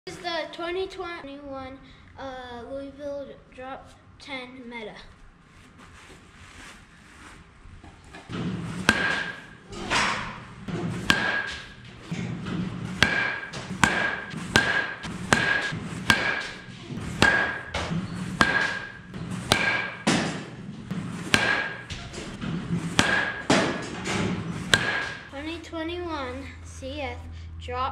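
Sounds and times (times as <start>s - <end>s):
baseball bat hitting balls: 8.3s - 25.5s.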